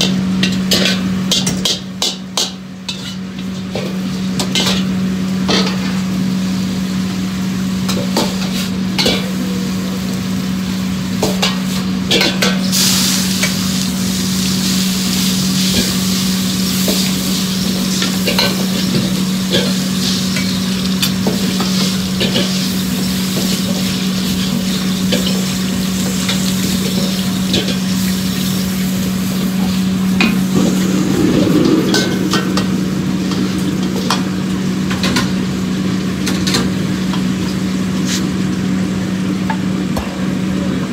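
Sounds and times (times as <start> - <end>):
ladle clanking and scraping a wok: 0.0 - 6.2, 7.8 - 9.8, 11.2 - 13.6, 14.6 - 35.4
frying sizzle: 0.0 - 40.9
steady low hum: 0.0 - 40.9.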